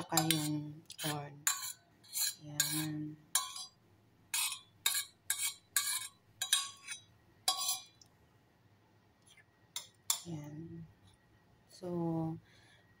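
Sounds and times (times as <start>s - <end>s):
metal spoon scraping metal pot: 0.0s - 8.0s.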